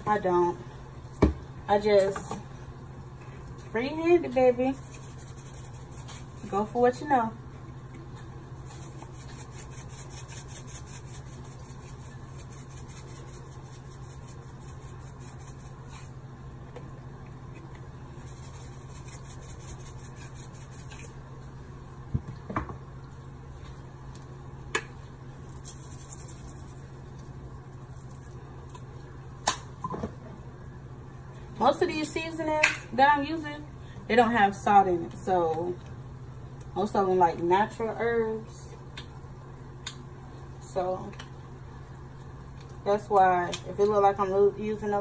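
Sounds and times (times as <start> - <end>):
steady low hum: 0.0 - 45.0
seasoning shaker rasping: 4.5 - 6.8, 8.6 - 16.2, 18.1 - 21.2, 25.4 - 28.8
shaker containers clicking: 25.5 - 27.2.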